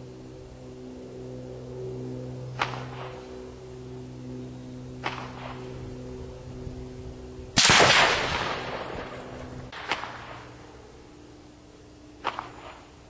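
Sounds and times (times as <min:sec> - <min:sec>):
rifle shot: 0:07.6 - 0:10.4
faint sharp crack: 0:09.8 - 0:10.5, 0:12.2 - 0:12.9.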